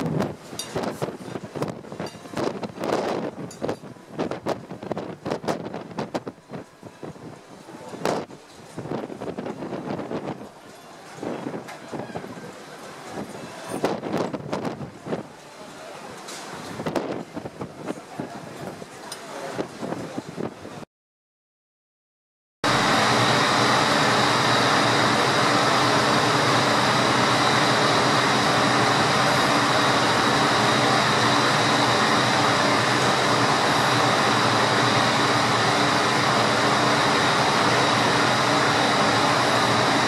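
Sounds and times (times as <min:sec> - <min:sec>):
machinery hum and rushing: 0:22.6 - 0:40.0.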